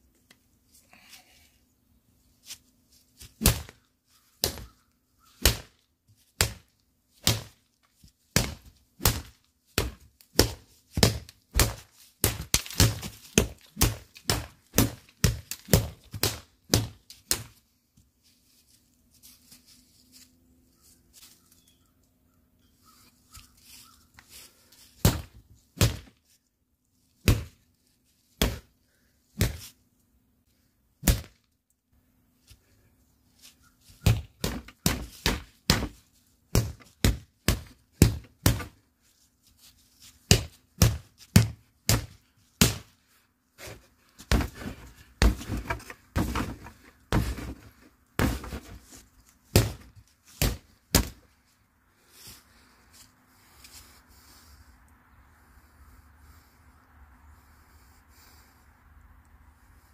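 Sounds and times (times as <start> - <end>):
stick striking rubber dummy: 3.2 - 3.8, 4.4 - 7.6, 8.3 - 17.6, 25.0 - 26.2, 27.2 - 27.6, 28.4 - 28.7, 29.4 - 29.7, 31.0 - 31.5, 33.9 - 38.9, 40.3 - 43.0, 43.6 - 51.3.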